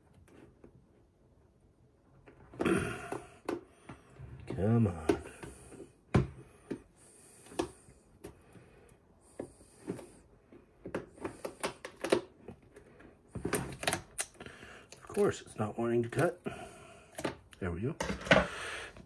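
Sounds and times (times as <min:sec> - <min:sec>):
taps and knocks on plastic bin: 0:04.9 - 0:06.8.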